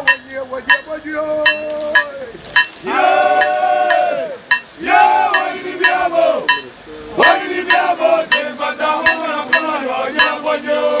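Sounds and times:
metallic clinking beat: 0.0s - 2.8s, 3.4s - 11.0s
people singing: 2.8s - 11.0s.

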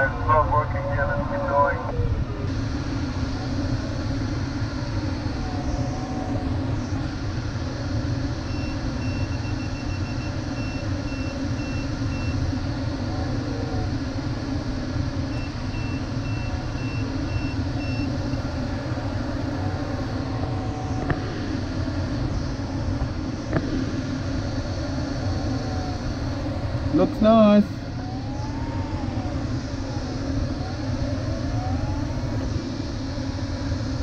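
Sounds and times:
rush of airflow in cockpit: 0.0s - 34.0s.

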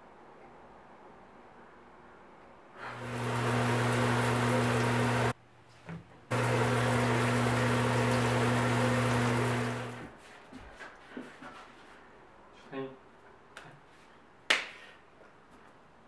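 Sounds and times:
shower water rushing: 2.8s - 5.4s, 6.3s - 10.1s.

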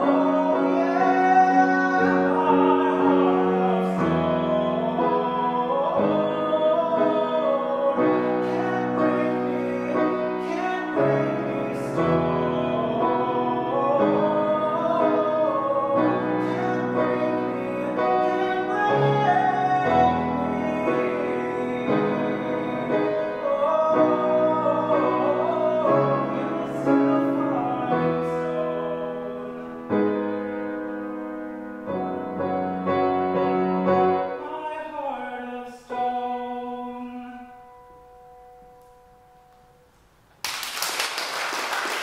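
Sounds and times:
person singing: 0.0s - 30.4s, 34.0s - 37.9s
grand piano: 0.0s - 42.0s
applause: 40.4s - 42.0s.

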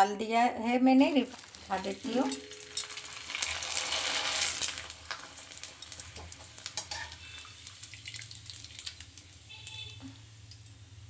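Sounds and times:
food sizzling in hot oil: 0.9s - 11.0s
metal tongs clinking on pan: 2.1s - 3.2s, 6.7s - 7.2s.

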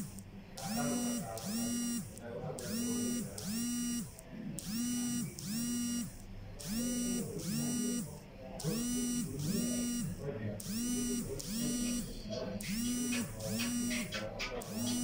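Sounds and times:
alarm tone sliding blasts: 0.0s - 15.0s.

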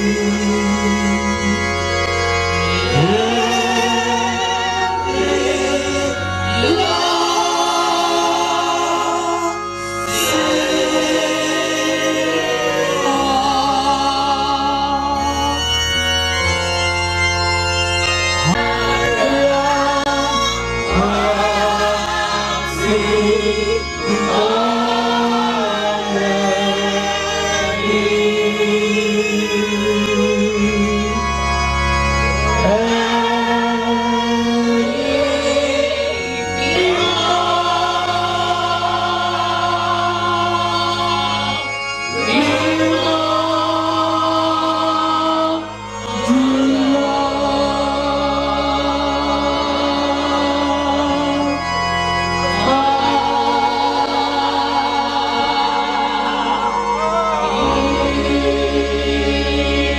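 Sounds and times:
man singing a hymn: 0.0s - 15.7s, 18.5s - 31.3s, 32.4s - 41.2s, 52.3s - 59.9s
choir singing: 0.0s - 16.6s, 18.4s - 59.9s
electronic keyboard low notes: 0.0s - 59.9s.

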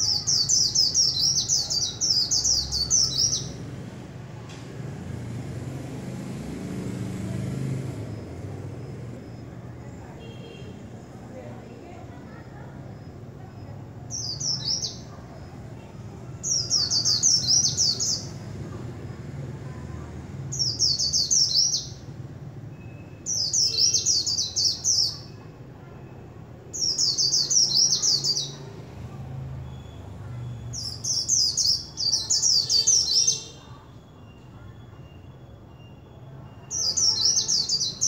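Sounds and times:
bird twittering song: 26.8s - 28.6s.

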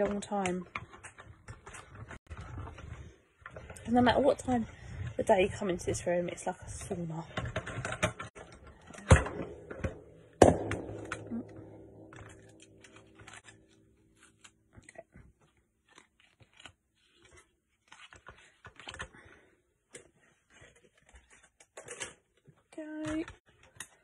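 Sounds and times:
paper rustling: 12.1s - 19.5s.

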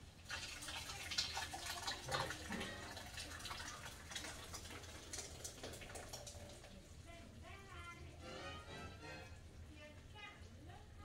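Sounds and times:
liquid pouring stream: 0.0s - 7.0s.

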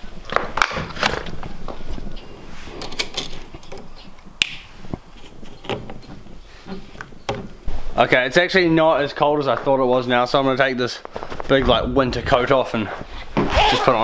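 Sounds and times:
clicks and knocks with rubbing: 2.8s - 7.7s.

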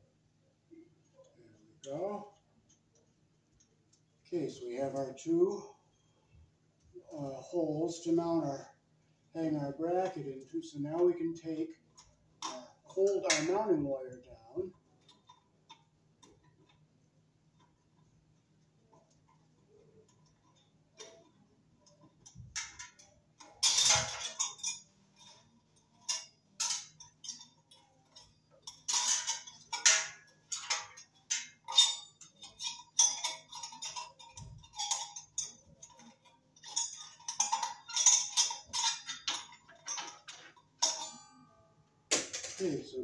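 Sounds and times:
metal clicks and clinks: 20.0s - 41.6s.

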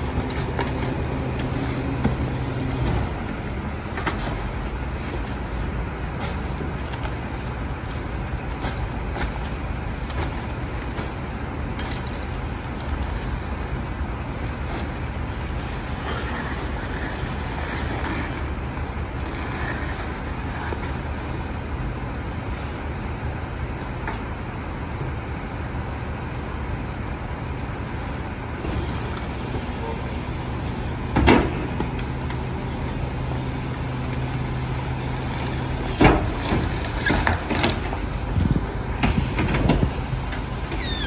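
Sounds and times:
trash bags thudding and rustling: 0.0s - 21.6s, 30.9s - 40.7s
garbage truck diesel engine: 0.0s - 41.0s.

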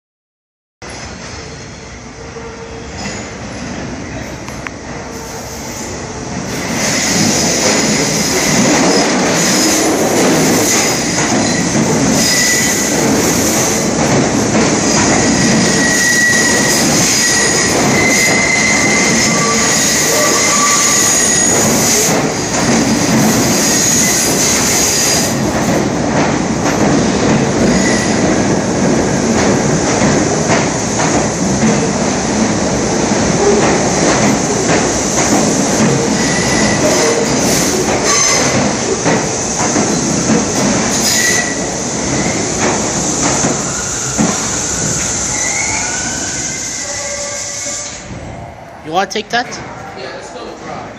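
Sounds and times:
steel wheels on rail: 2.7s - 48.3s
high-pitched wheel squeals: 10.8s - 12.9s, 15.1s - 22.1s, 27.6s - 28.2s, 36.1s - 38.6s, 41.0s - 42.4s, 43.6s - 48.0s.

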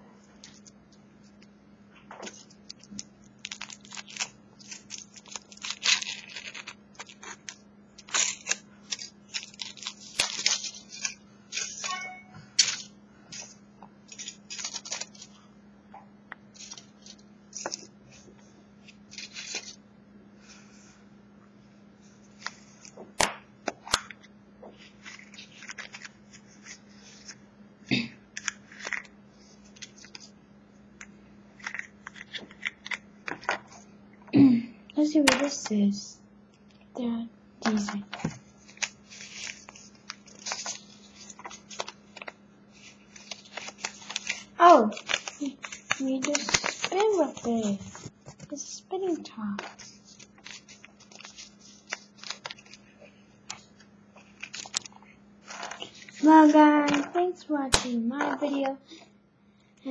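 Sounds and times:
foil wrapper crinkling and tearing: 2.3s - 12.0s, 12.6s - 13.5s, 14.1s - 15.4s, 16.5s - 17.9s, 19.1s - 19.8s, 31.6s - 33.0s, 38.6s - 48.1s, 49.6s - 52.9s, 53.6s - 56.7s.

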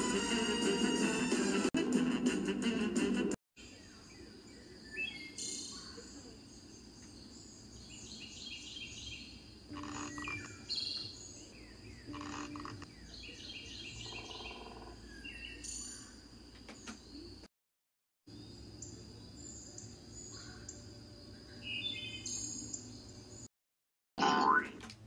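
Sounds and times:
birds chirping: 3.7s - 17.5s, 18.3s - 23.5s.

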